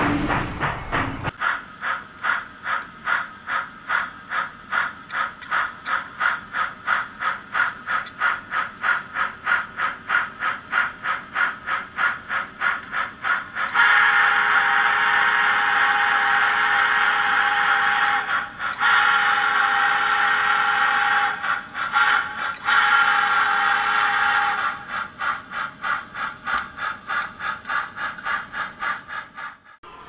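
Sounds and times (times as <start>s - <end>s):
steam locomotive exhaust chuffs: 0.0s - 30.0s
steam whistle: 13.7s - 24.8s.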